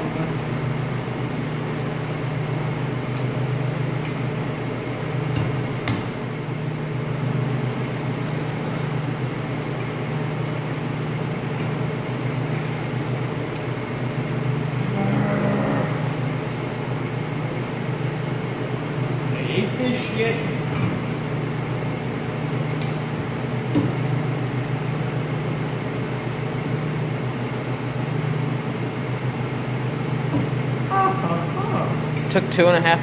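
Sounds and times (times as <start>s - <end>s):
low machinery hum: 0.0s - 33.0s.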